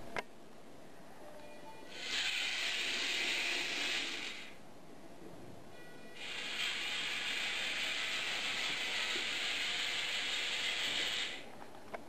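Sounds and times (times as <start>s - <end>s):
small gear motors whirring: 1.9s - 4.6s, 6.2s - 11.4s.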